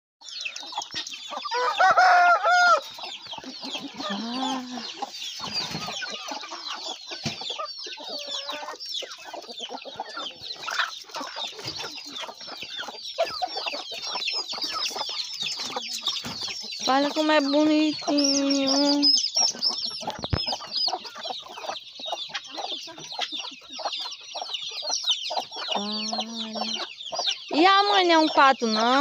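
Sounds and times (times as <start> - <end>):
chickens clucking: 0.2 - 29.0
chicks peeping: 0.2 - 29.0
loud chicken call: 1.4 - 7.0.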